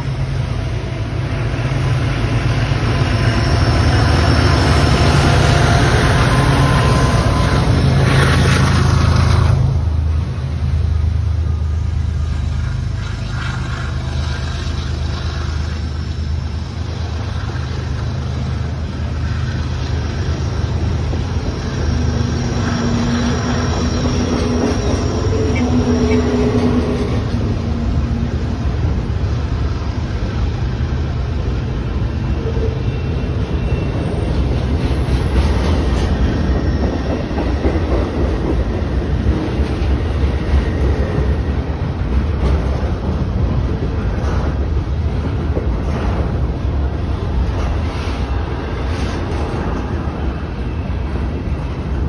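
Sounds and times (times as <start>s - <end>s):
train wheel squeal: 0.0s - 9.6s, 12.2s - 28.1s, 31.6s - 42.7s
freight train wheels rumbling: 0.0s - 52.0s.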